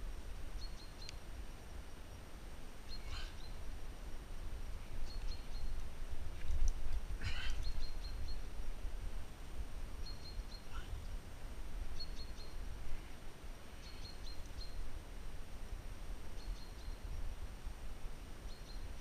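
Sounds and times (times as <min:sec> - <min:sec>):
small birds chirping: 0:00.5 - 0:03.7, 0:04.6 - 0:08.7, 0:10.0 - 0:11.2, 0:11.9 - 0:14.9, 0:16.3 - 0:17.5, 0:18.4 - 0:19.0.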